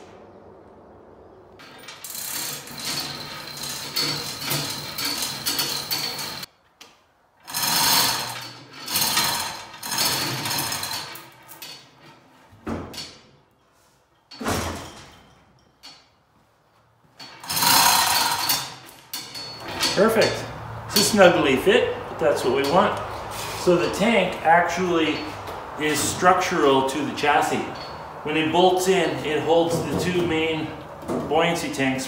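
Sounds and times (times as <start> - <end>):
chain rattling through hoist: 1.6 - 6.5, 7.4 - 12.2, 17.2 - 21.6, 22.4 - 23.0, 23.6 - 30.7.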